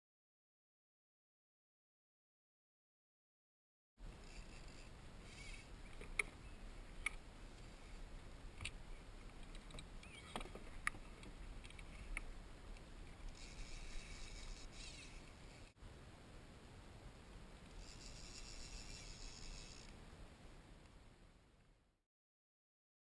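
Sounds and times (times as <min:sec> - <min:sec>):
faint water: 0:04.0 - 0:21.8
wind: 0:04.0 - 0:22.0.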